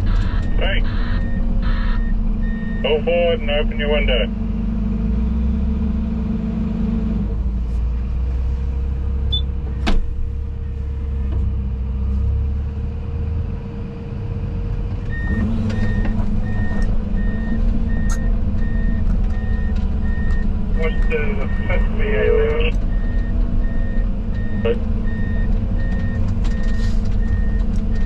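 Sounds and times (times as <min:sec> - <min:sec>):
reversing alarm beeping: 0:00.0 - 0:03.1, 0:15.1 - 0:28.0
heavy diesel machinery running: 0:00.0 - 0:28.0.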